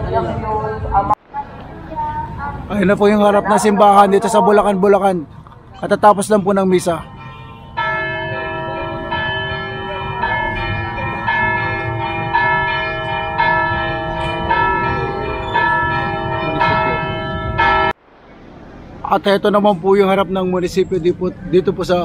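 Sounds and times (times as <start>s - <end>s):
church bells ringing: 6.8s - 18.0s.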